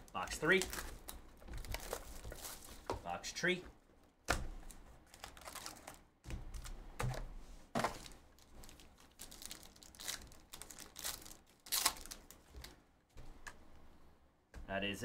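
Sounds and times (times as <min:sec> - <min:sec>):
foil pack crinkling: 0:00.2 - 0:02.9, 0:05.0 - 0:06.7, 0:07.8 - 0:12.8
wrapper and box rustling: 0:00.2 - 0:02.9, 0:05.0 - 0:06.0, 0:07.8 - 0:12.8
foil pack tearing open: 0:07.9 - 0:12.4.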